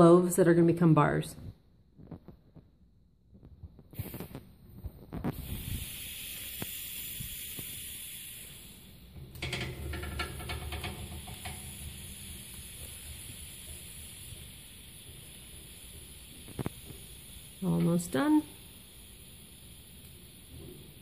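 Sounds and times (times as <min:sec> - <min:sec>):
compressed air hissing: 0:03.9 - 0:04.4, 0:05.2 - 0:21.0
rattling clicks: 0:09.2 - 0:12.2.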